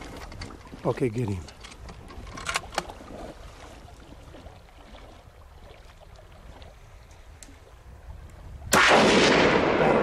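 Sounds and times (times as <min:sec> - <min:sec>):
wind: 0:00.0 - 0:10.0
rifle shots: 0:08.7 - 0:10.0.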